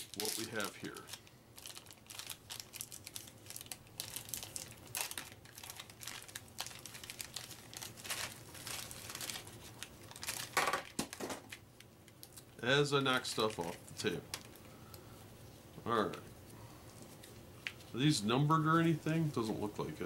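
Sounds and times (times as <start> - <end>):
plastic wrapping crinkling: 0.0 - 14.7.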